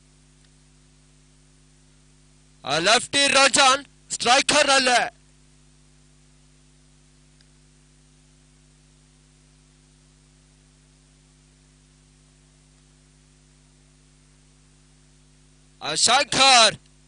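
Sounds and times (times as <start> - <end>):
faint steady hiss: 0.0 - 17.0
low electrical hum: 0.0 - 17.0.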